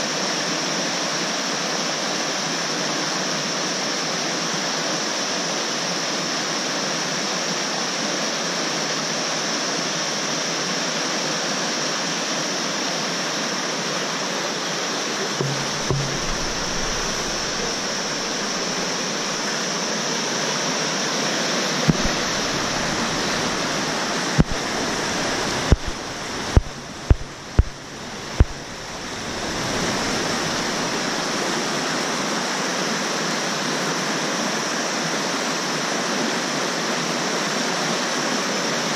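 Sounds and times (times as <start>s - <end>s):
river rushing over rocks: 0.0s - 38.9s
sharp knocks or clicks: 15.4s - 19.4s, 21.9s - 29.9s.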